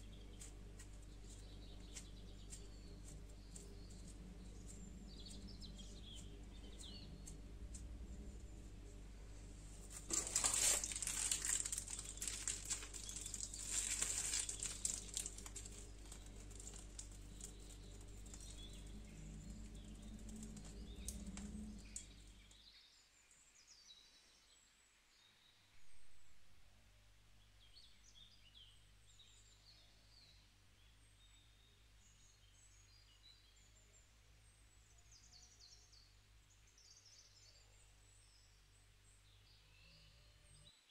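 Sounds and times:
faint rustling: 0.0 - 22.6
low hum: 0.0 - 22.6
faint bird chirping: 0.0 - 26.3, 27.4 - 40.9.

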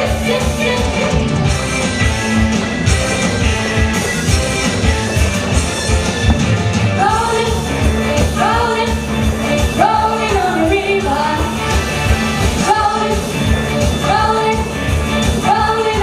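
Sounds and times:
amplified band backing: 0.0 - 16.0
steady drum beat: 0.8 - 12.7.

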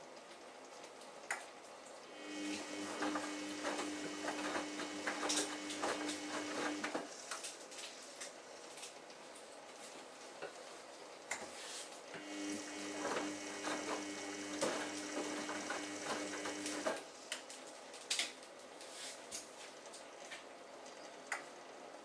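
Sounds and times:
washing machine motor hum: 2.0 - 7.3, 12.1 - 17.2.

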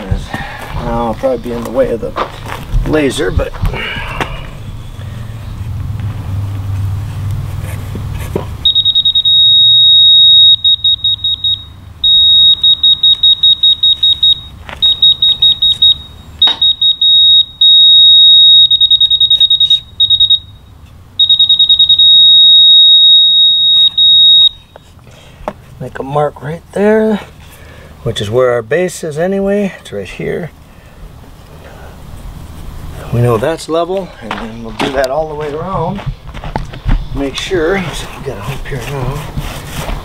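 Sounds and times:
high-pitched rapid beeping: 8.6 - 20.6, 21.2 - 24.6
steady held tone: 8.6 - 24.8.

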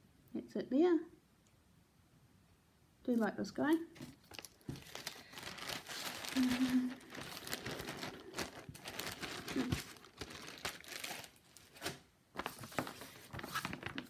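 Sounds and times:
plastic bag crinkling: 3.1 - 14.0.

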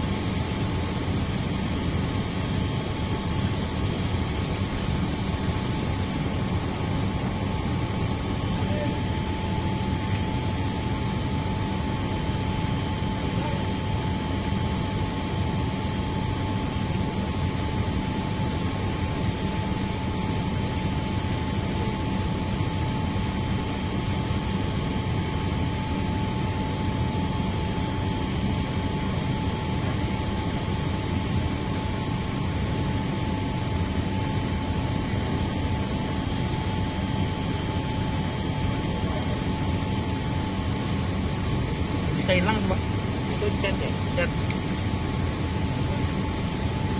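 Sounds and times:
low mechanical drone: 0.0 - 14.3
thin constant whine: 0.0 - 46.9.

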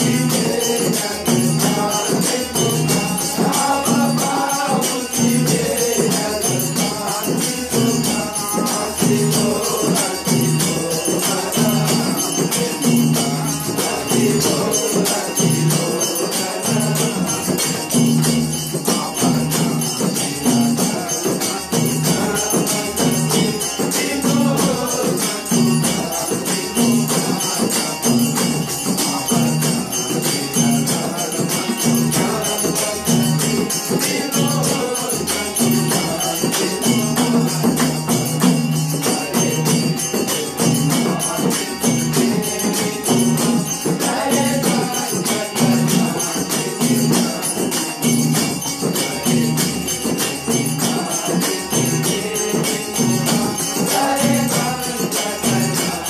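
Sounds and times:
hand cymbals jingling: 0.0 - 56.0
men singing: 0.0 - 56.0.

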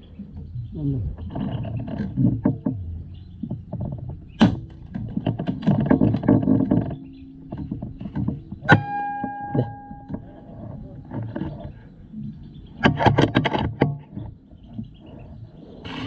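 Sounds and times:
crackling handling noise: 1.2 - 12.1
metallic ringing: 7.0 - 12.0.

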